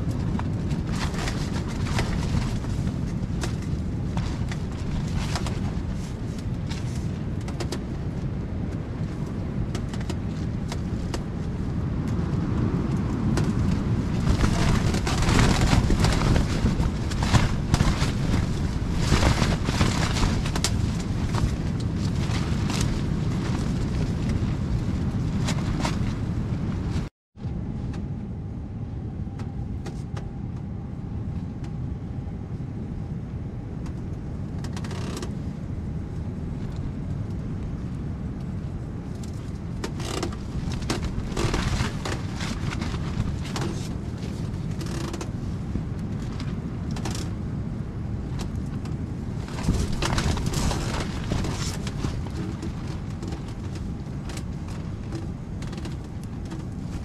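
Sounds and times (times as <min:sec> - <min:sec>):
strong wind buffeting a tent: 0:00.0 - 0:57.0
short rustles and clicks: 0:48.3 - 0:57.0.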